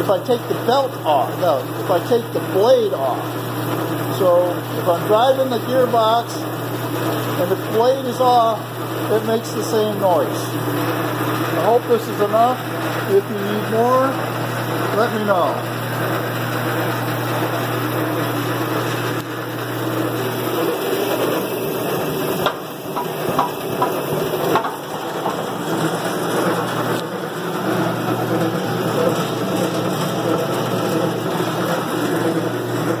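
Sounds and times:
band saw drive humming: 0.0 - 33.0.

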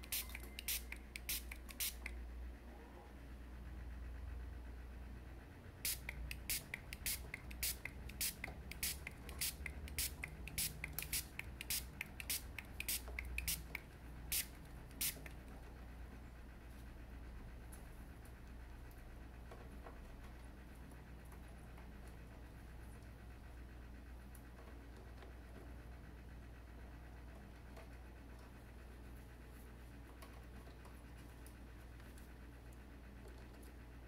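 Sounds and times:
spray bottle squirting: 0.0 - 2.1, 5.8 - 15.4
steady low hum: 0.0 - 34.0.

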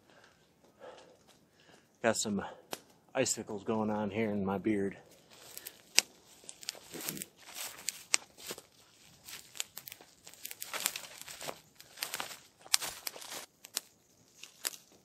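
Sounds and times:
twig fire crackling and popping: 0.0 - 2.0, 2.6 - 3.1, 5.1 - 15.0.

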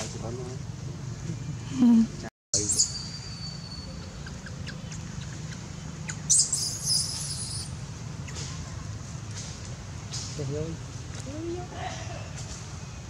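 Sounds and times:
baby monkey squealing: 2.6 - 8.5.

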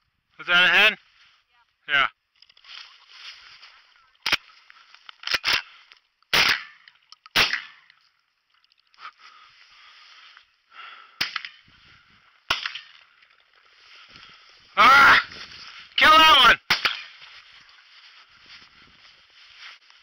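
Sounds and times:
shotgun shots: 6.3 - 7.8, 16.6 - 17.1.

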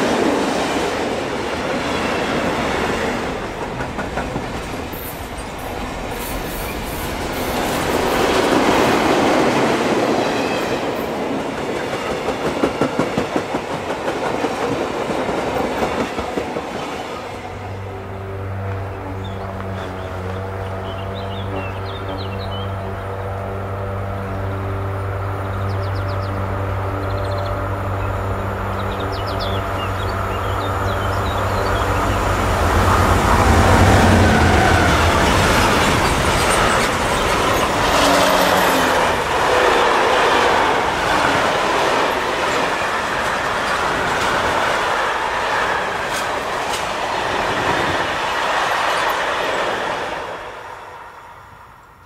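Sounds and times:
electric locomotive hum: 0.0 - 52.0
birds chirping: 18.9 - 23.3, 25.1 - 39.5
freight wagons rumbling: 27.2 - 49.3.

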